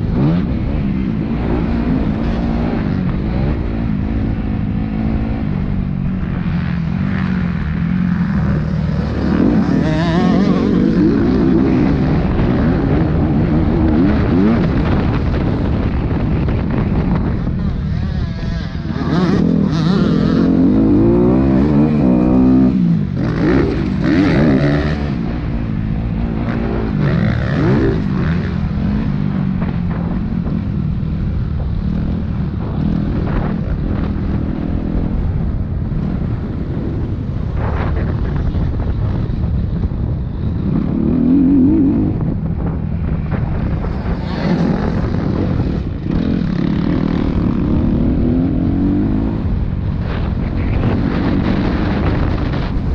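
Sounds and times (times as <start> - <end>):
dirt bike engine revving: 0.0 - 30.2, 43.6 - 52.7.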